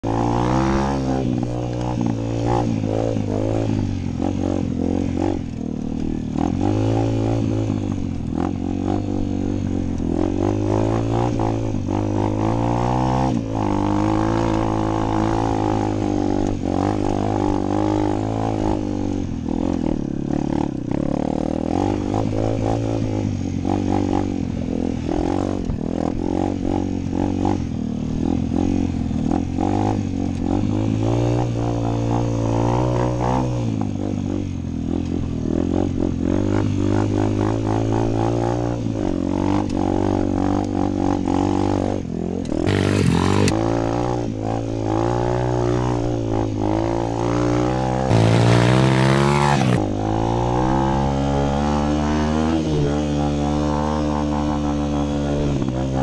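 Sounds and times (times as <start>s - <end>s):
motorbike engine revving: 42.5s - 44.1s, 48.1s - 55.5s.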